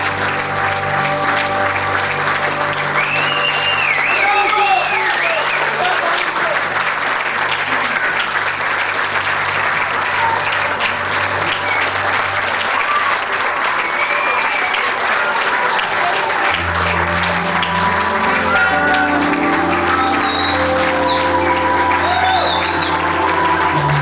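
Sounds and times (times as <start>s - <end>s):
audience applauding: 0.0s - 24.0s
music: 0.0s - 24.0s.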